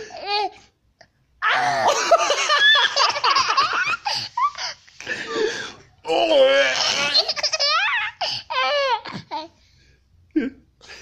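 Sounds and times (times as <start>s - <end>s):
boy laughing hard: 1.5s - 5.5s, 6.8s - 8.7s.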